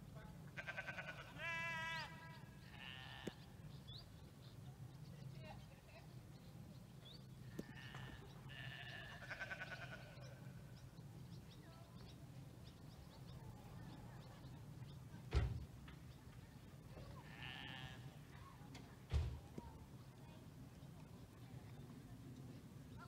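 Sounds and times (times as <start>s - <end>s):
thump: 15.3s - 15.7s, 19.1s - 19.6s.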